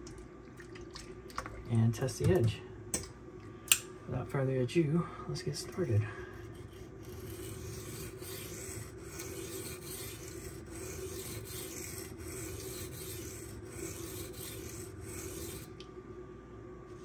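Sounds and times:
knife scraping on whetstone: 5.8s - 15.8s.

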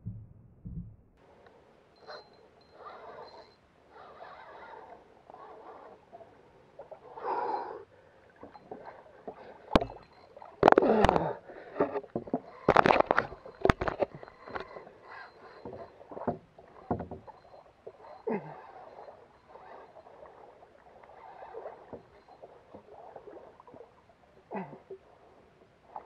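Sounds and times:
water splashing against kayak: 7.9s - 26.0s.

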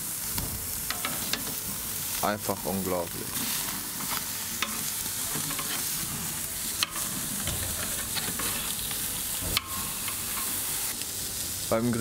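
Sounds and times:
steaks sizzling on grill: 0.0s - 12.0s
metal tongs clicking on grill: 0.9s - 1.6s, 4.0s - 6.0s, 6.7s - 11.0s.

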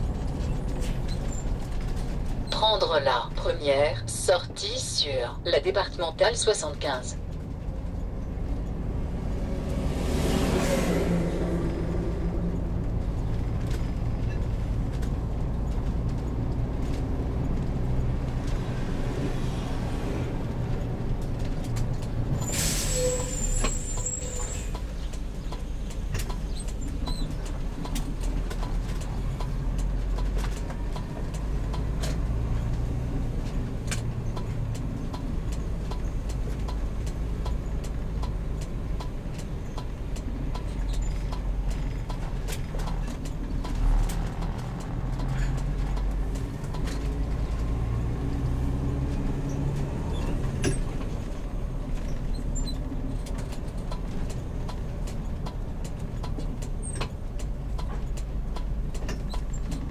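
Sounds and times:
motorhome engine running: 0.0s - 59.9s
air brake hiss: 22.4s - 24.0s.

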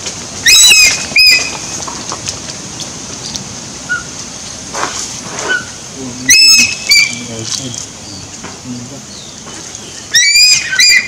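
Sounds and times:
eagle screaming: 6.3s - 7.3s, 10.1s - 11.0s.

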